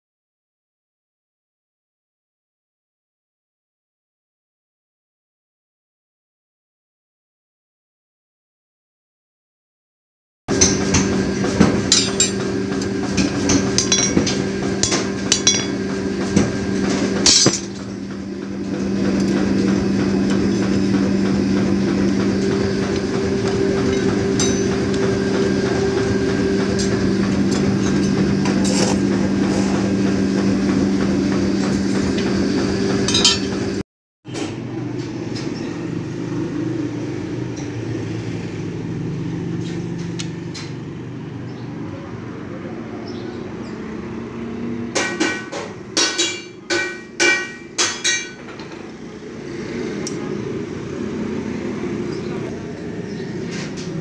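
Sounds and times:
hammer striking metal on anvil: 0:10.5 - 0:18.0, 0:22.4 - 0:25.1, 0:33.1 - 0:33.7, 0:45.0 - 0:48.9
loud steady machine hum: 0:10.5 - 0:54.0.

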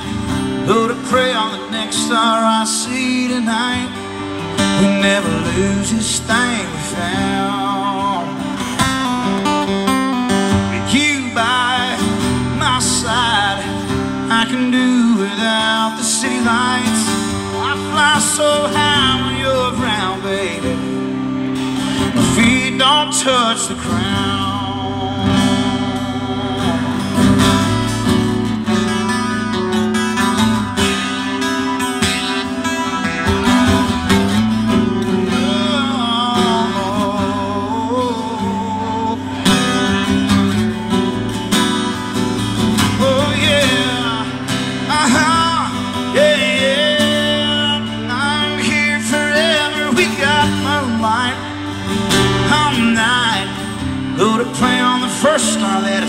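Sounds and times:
acoustic guitar country music: 0:00.0 - 0:56.0.

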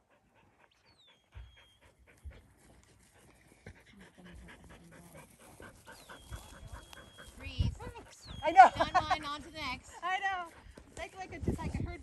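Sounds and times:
dog panting: 0:00.0 - 0:11.0.

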